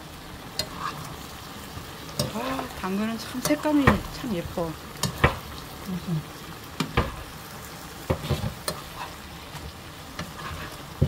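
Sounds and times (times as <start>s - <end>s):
vegetables sizzling in a frying pan: 0.0s - 11.0s
metal spoon clacking against pan: 5.0s - 5.4s.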